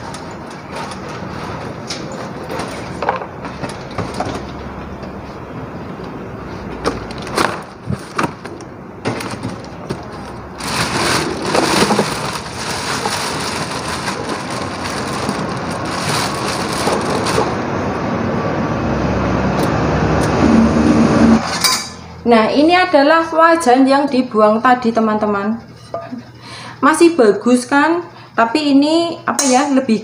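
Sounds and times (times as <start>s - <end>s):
plastic bag rustling: 7.2s - 17.6s.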